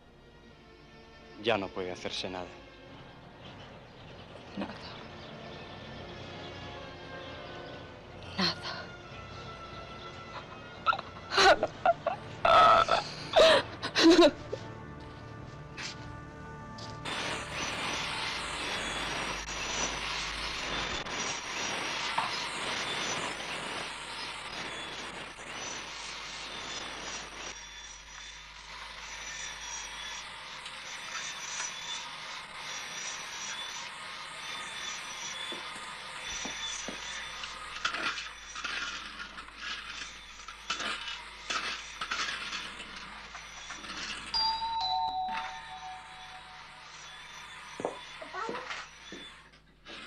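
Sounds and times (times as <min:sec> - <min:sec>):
toy train rattling on rails: 0:17.1 - 0:50.0.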